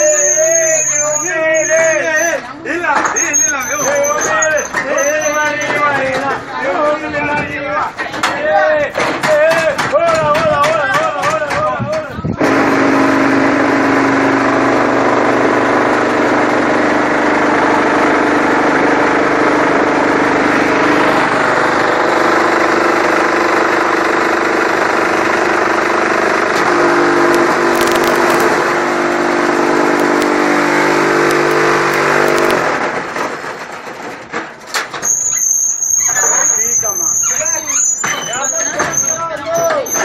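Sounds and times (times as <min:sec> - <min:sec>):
brick-making machine humming: 0:12.4 - 0:34.6.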